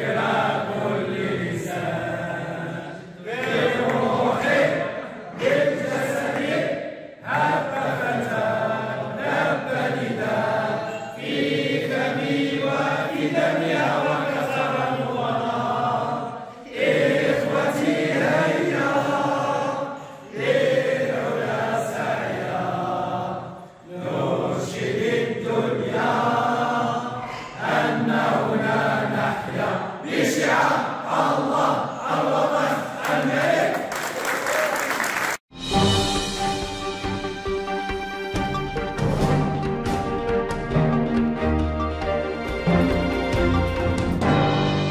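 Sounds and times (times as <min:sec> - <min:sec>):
group singing in unison: 0:00.0 - 0:34.2.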